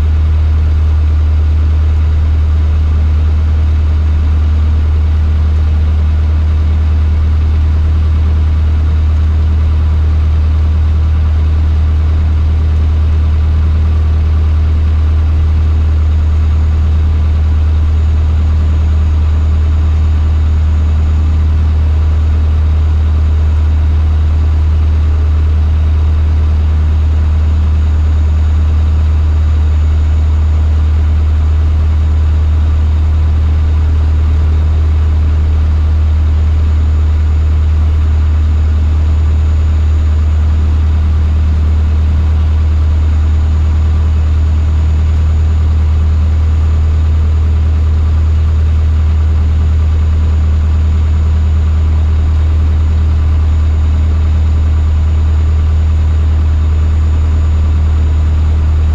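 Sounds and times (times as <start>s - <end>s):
airplane engine drone in cockpit: 0.0s - 58.9s.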